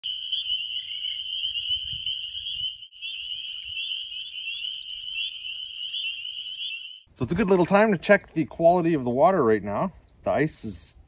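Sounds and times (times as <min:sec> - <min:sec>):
chorus of frogs peeping: 0:00.0 - 0:07.1.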